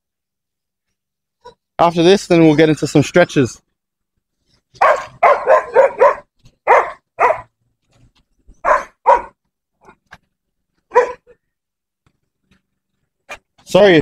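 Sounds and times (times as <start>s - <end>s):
dog barking: 4.8s - 7.6s, 8.6s - 9.4s, 10.9s - 11.4s.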